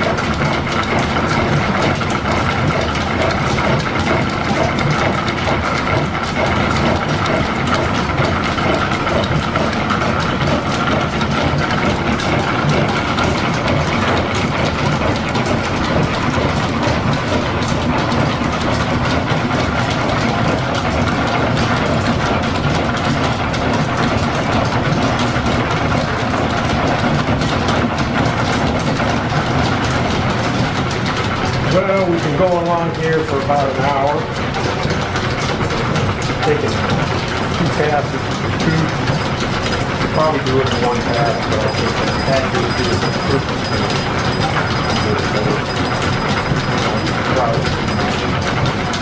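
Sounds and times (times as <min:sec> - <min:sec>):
milling machine clattering: 0:00.0 - 0:49.0
faint machine whine: 0:40.2 - 0:48.7.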